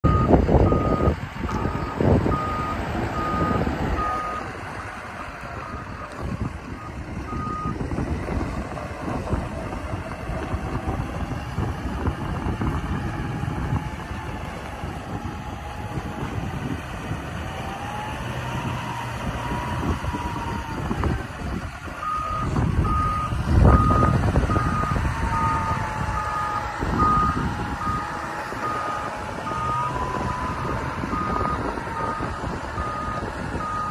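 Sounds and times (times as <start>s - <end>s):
wheel loader drive whine: 0.0s - 33.9s
reverse alarm beeping: 0.1s - 4.5s, 6.8s - 7.8s, 22.0s - 33.9s.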